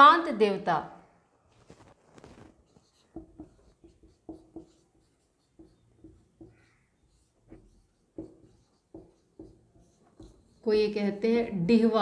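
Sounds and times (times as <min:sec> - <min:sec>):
marker pen writing on whiteboard: 0:02.2 - 0:11.2.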